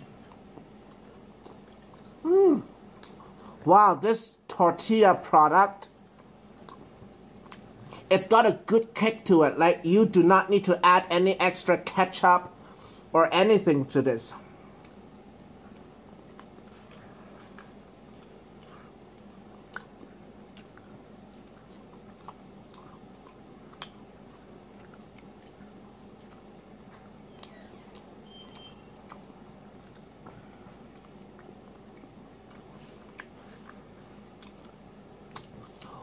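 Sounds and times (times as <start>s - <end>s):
person chewing food: 0.0s - 3.6s, 5.8s - 8.1s, 14.5s - 36.0s
faint steady hum: 0.0s - 36.0s.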